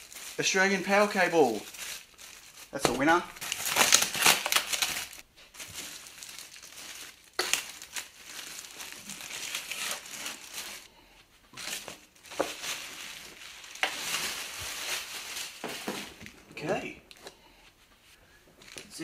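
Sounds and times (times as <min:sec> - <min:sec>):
plastic film crinkling: 0:00.0 - 0:17.4, 0:18.5 - 0:19.0.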